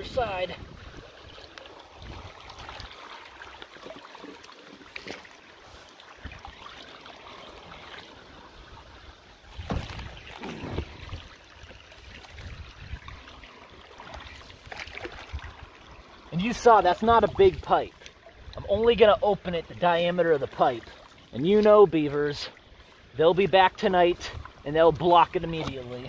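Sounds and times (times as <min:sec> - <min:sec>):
steady wash of water: 0:00.0 - 0:26.0
hands splashing in water: 0:14.0 - 0:15.5.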